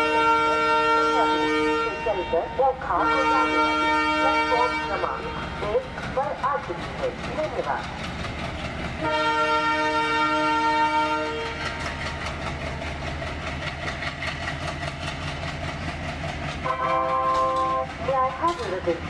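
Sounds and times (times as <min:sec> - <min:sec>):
locomotive multi-note horn: 0:00.0 - 0:05.8, 0:09.0 - 0:11.9, 0:16.5 - 0:19.0
train rumbling: 0:00.0 - 0:19.0.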